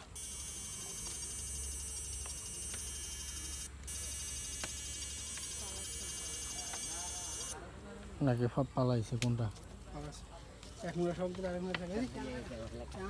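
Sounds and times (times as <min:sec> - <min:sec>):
high-pitched electronic whine and buzz: 0:00.0 - 0:07.6.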